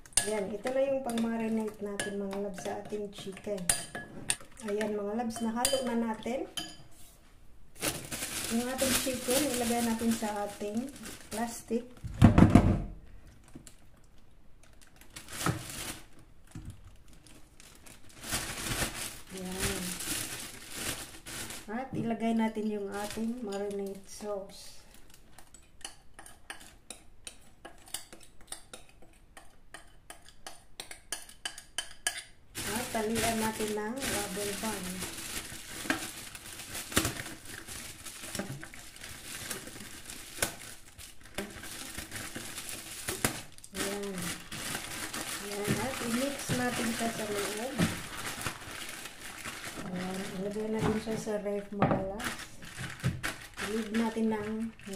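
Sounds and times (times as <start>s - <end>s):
plastic bag crinkling: 7.8s - 12.1s, 14.6s - 22.0s, 22.6s - 24.0s, 32.6s - 54.9s.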